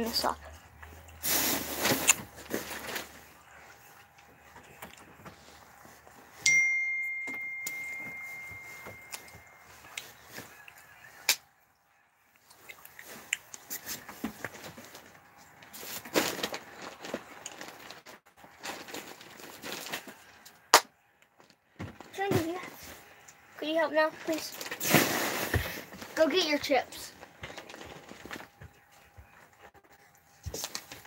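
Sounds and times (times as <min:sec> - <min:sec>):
high ding ringing: 0:06.4 - 0:09.9.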